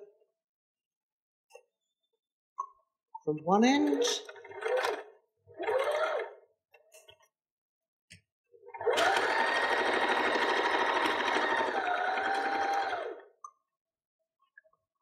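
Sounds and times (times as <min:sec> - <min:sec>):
sewing machine stitching: 0:03.8 - 0:06.4, 0:08.7 - 0:13.2.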